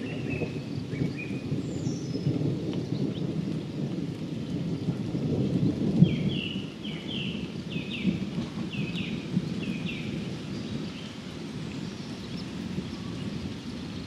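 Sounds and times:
light rain hiss: 0:00.0 - 0:14.0
thunder rumbling: 0:00.0 - 0:14.0.

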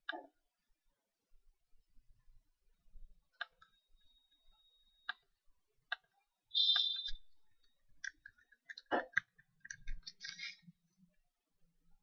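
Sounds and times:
computer mouse clicks: 0:05.9 - 0:07.2, 0:08.0 - 0:10.6
keyboard typing: 0:08.0 - 0:10.6.

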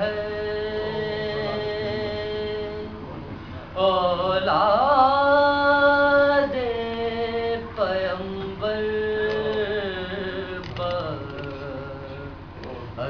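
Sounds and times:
man singing mourning elegy: 0:00.0 - 0:02.9.

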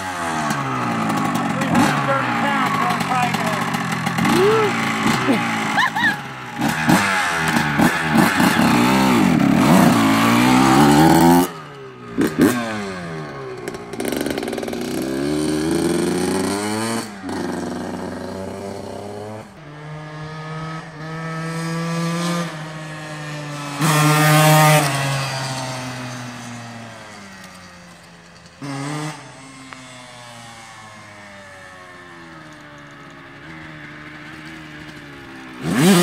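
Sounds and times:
dirt bike engine revving: 0:00.0 - 0:36.0.

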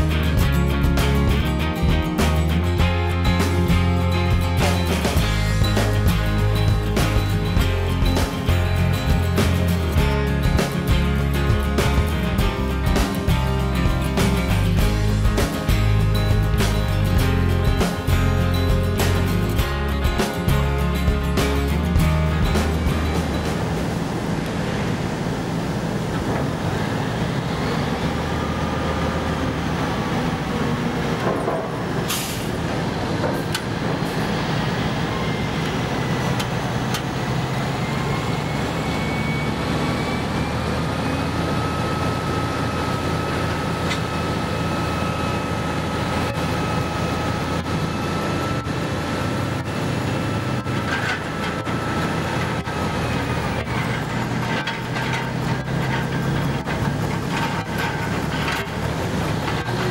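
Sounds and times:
heavy diesel engines running: 0:00.0 - 0:59.9
hydraulic whine rising and falling: 0:20.8 - 0:59.9.

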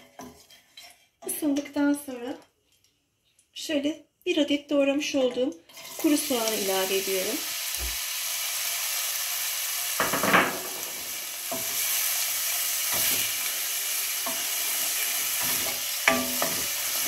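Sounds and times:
wooden spoon scraping a pot: 0:00.0 - 0:01.6, 0:14.2 - 0:17.0
onion sizzling in oil: 0:05.7 - 0:17.0.

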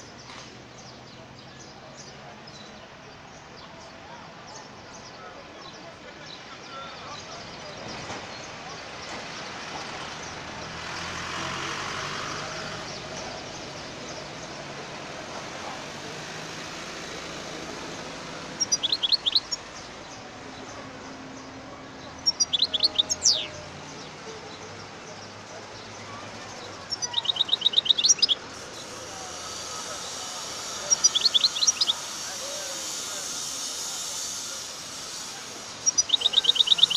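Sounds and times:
goldfinch twittering: 0:17.4 - 0:20.8, 0:22.0 - 0:23.6, 0:26.6 - 0:36.9.

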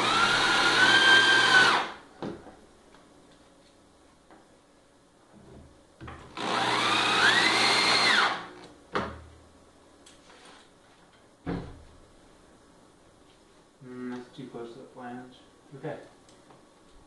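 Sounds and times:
electric drill motor whining: 0:00.0 - 0:02.0, 0:06.3 - 0:08.7.

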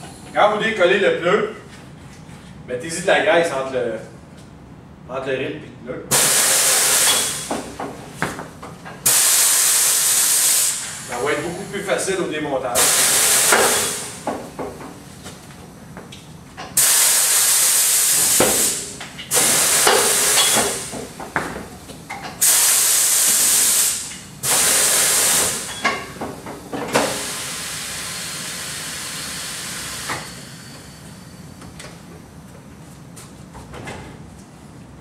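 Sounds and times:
compressed air hissing: 0:06.1 - 0:07.8, 0:09.0 - 0:12.0, 0:12.8 - 0:14.3, 0:16.8 - 0:21.2, 0:22.4 - 0:25.8, 0:27.0 - 0:31.4.

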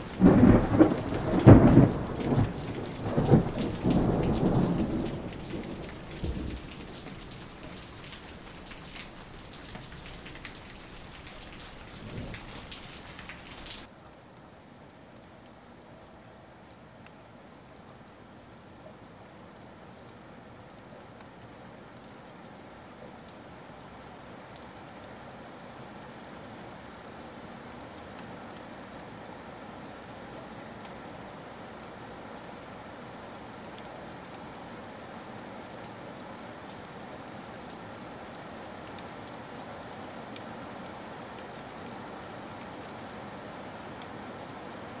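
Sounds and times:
raindrops ticking: 0:00.0 - 0:18.6
steady rainfall: 0:00.0 - 0:45.0.

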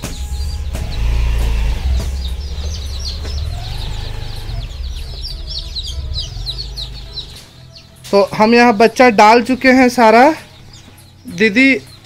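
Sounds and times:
steady low rumble: 0:00.0 - 0:07.6
chicks peeping: 0:00.0 - 0:12.0.

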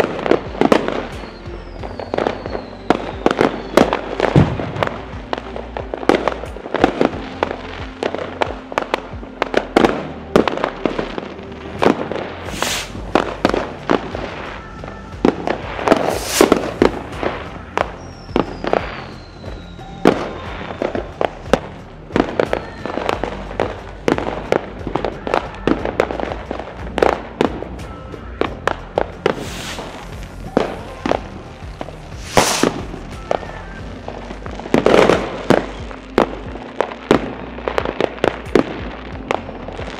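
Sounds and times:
falling firework whistle: 0:00.0 - 0:05.5, 0:11.8 - 0:26.4, 0:29.2 - 0:36.4
fireworks bangs and crackles: 0:00.0 - 0:39.9.

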